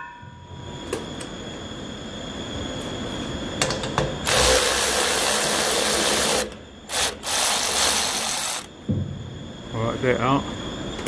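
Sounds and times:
cordless ratchet motor whirring: 0:04.3 - 0:08.7.

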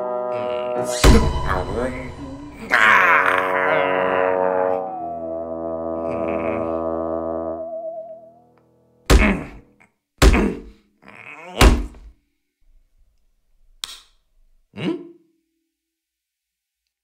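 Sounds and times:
wavering music tone: 0:00.0 - 0:08.6.

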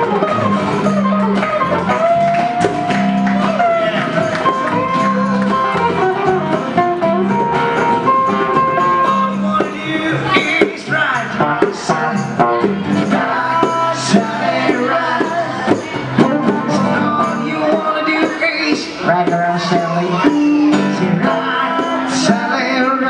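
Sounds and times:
hand drum: 0:00.0 - 0:20.9
strummed acoustic guitars: 0:00.0 - 0:23.0.

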